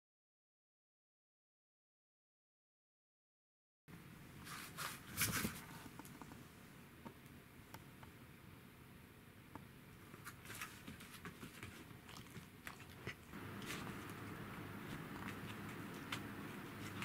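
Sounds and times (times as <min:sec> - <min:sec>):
dog paws tapping on foam mats: 0:10.1 - 0:17.0.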